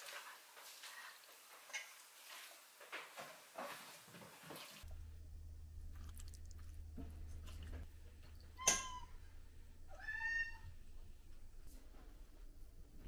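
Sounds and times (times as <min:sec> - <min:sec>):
cat meowing: 0:09.9 - 0:10.7.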